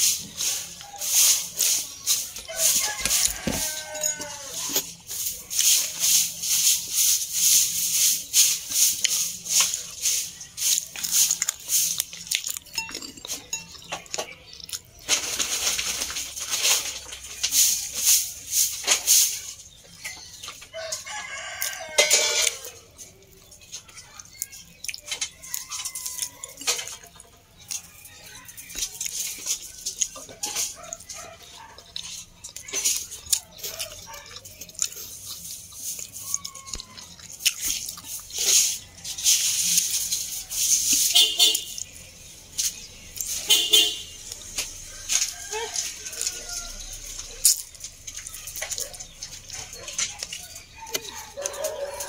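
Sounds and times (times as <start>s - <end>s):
crunchy chewing: 0.0s - 52.0s
rooster crowing: 2.4s - 4.8s, 20.8s - 22.8s, 44.8s - 47.2s, 50.8s - 52.0s.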